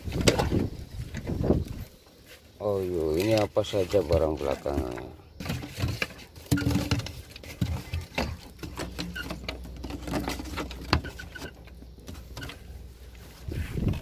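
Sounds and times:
handling clicks and knocks: 3.0s - 12.7s.

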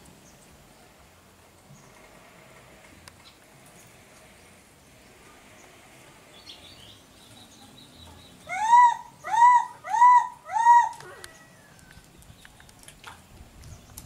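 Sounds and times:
young monkey crying: 8.5s - 11.7s.

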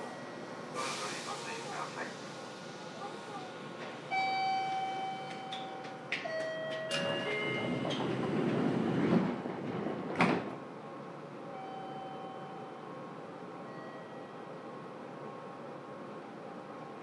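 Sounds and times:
door chime tones: 4.1s - 7.9s.

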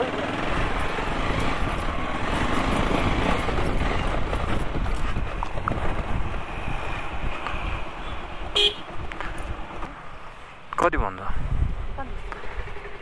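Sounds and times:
motorcycle engine running: 0.0s - 6.4s, 11.9s - 13.0s
wind buffeting microphone: 0.0s - 13.0s.

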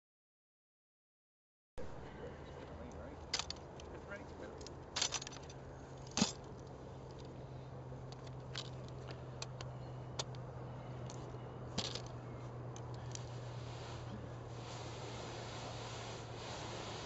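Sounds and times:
steady low hum: 1.8s - 17.0s
metal frame clicks and clanks: 4.6s - 6.6s.

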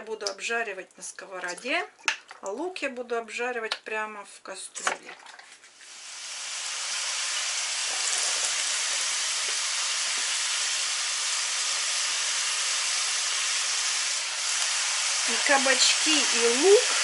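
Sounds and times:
vegetables sizzling in oil: 5.8s - 17.0s.

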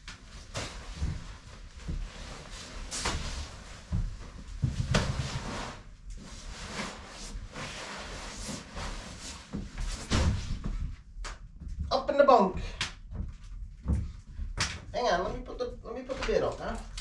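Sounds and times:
nylon sleeping bag rustling: 0.2s - 10.8s.

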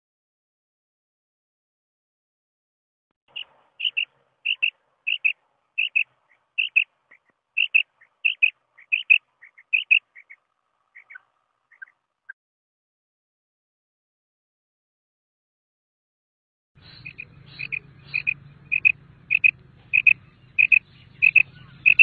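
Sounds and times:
quail calling: 3.3s - 12.0s, 16.8s - 22.0s.

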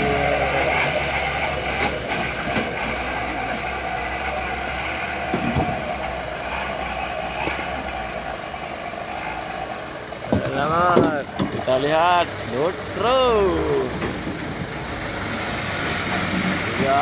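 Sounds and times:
diesel engine running: 0.0s - 17.0s
stones knocking into truck bed: 10.3s - 11.5s.

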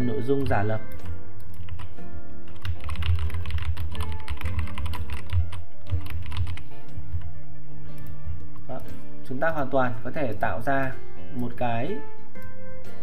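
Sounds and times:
keyboard key clicks: 0.4s - 6.7s.

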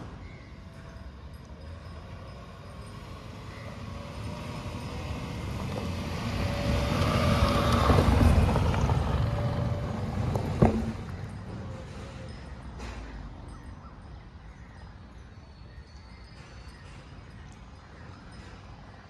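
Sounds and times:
tyres on dirt: 0.0s - 13.5s
car engine pulling uphill: 1.4s - 13.0s.

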